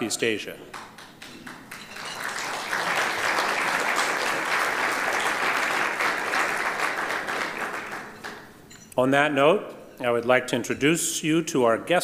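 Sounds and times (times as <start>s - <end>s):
audience applauding: 0.7s - 8.5s.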